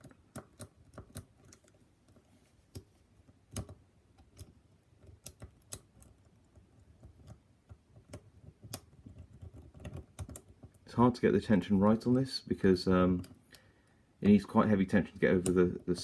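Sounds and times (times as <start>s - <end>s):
lock pick clicking and scraping: 0.0s - 10.8s.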